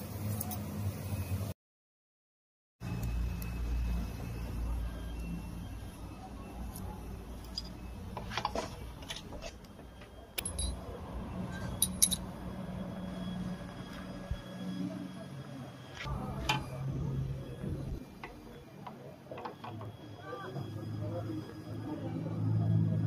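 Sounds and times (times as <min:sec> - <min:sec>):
steady low hum: 0:02.8 - 0:23.0
metallic clicks and clinks: 0:06.7 - 0:09.8, 0:10.4 - 0:10.9, 0:11.5 - 0:12.3.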